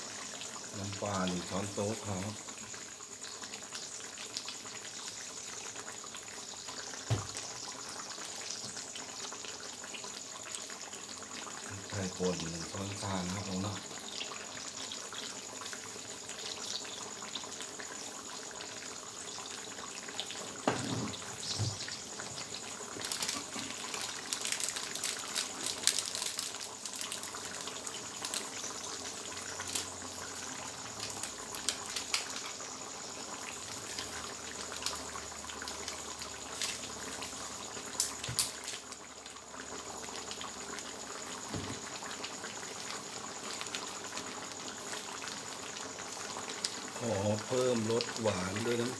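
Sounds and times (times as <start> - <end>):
curry simmering with bubbling hiss: 0.0 - 48.9
crackling pops: 20.6 - 29.0, 29.6 - 29.9, 31.0 - 32.6, 34.8 - 39.0, 46.5 - 46.8.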